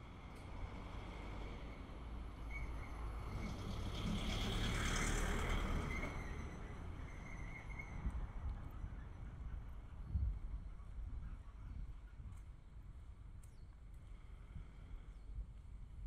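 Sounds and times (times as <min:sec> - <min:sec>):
truck driving past: 0:03.1 - 0:07.0.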